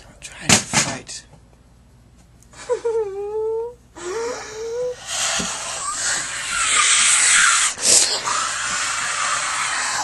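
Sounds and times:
girl's raspy breathy cry: 4.0s - 7.7s.

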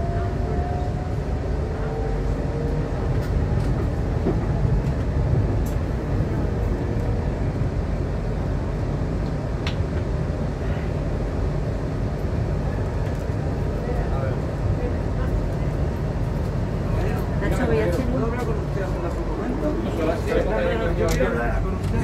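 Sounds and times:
train rumbling: 0.0s - 22.0s.

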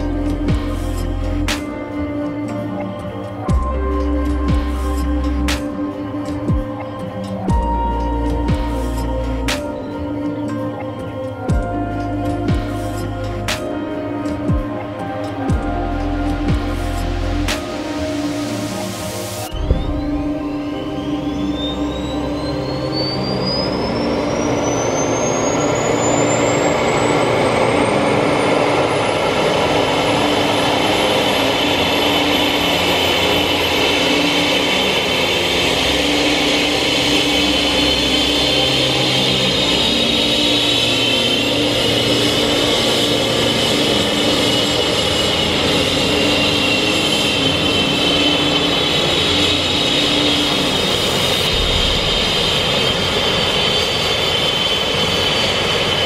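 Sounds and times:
helicopter turbine whine rising: 0.0s - 56.0s
helicopter running noise: 19.5s - 56.0s.

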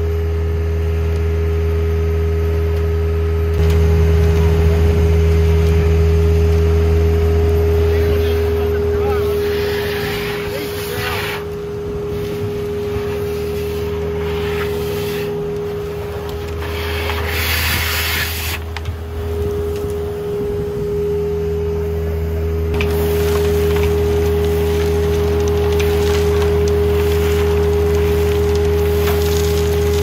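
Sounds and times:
vacuum blower whine and drone: 0.0s - 30.0s
suction hiss and debris rattle: 9.0s - 11.5s, 12.1s - 18.8s, 22.8s - 30.0s.

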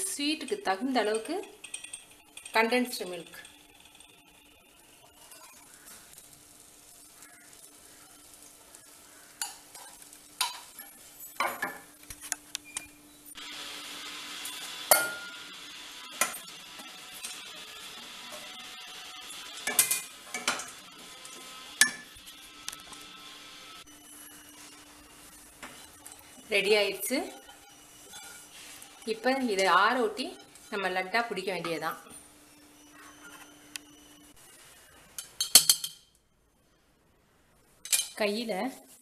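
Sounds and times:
spatula scraping crumbs in pan: 27.3s - 30.8s.

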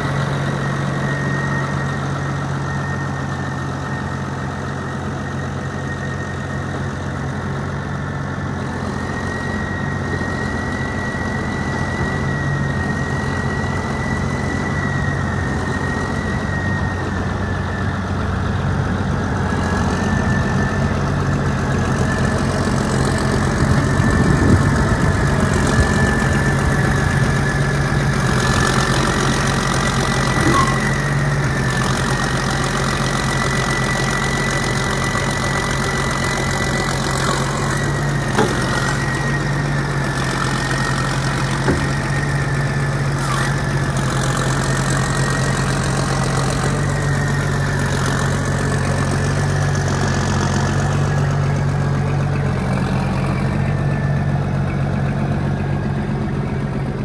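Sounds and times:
diesel tractor idling: 0.0s - 57.0s
high whine: 0.0s - 57.0s.

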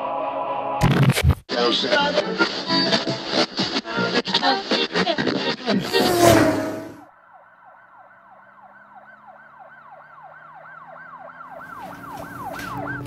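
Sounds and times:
siren yelping: 5.8s - 13.0s.

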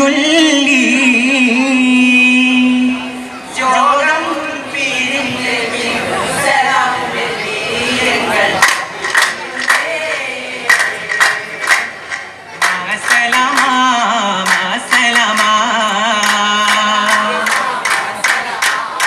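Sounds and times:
men singing in unison: 3.6s - 19.0s
rhythmic hand claps: 8.6s - 19.0s.

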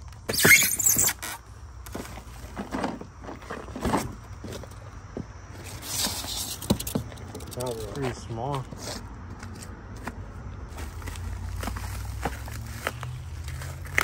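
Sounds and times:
foam and cardboard scraping: 0.3s - 4.7s, 5.5s - 7.4s.

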